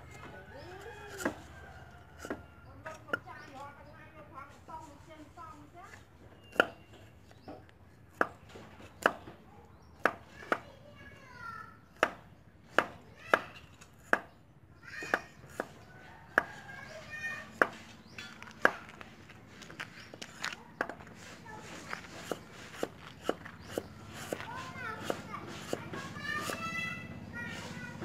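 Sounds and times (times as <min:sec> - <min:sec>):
cleaver chopping on wooden block: 0:02.2 - 0:03.2, 0:06.4 - 0:06.9, 0:08.1 - 0:09.4, 0:10.0 - 0:10.6, 0:12.0 - 0:14.4, 0:15.0 - 0:16.6, 0:22.1 - 0:25.8.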